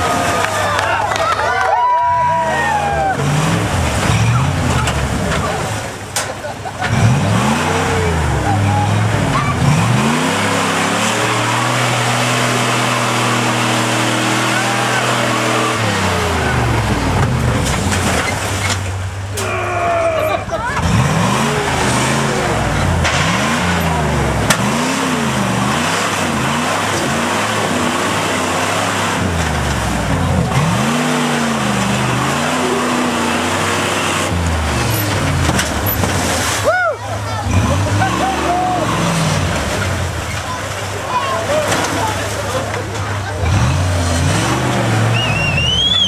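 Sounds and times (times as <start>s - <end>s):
tires spinning on rock: 0.0s - 46.0s
water churning and splashing: 0.0s - 46.0s
engine revving at high revs: 6.8s - 18.0s, 20.8s - 36.5s, 37.3s - 40.6s, 43.3s - 45.9s.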